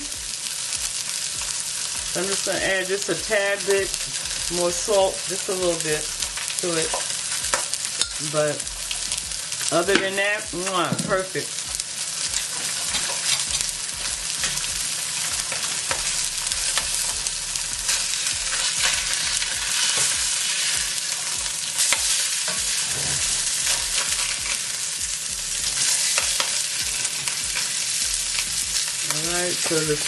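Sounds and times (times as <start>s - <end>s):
fish sizzling in a pan: 0.0s - 30.0s.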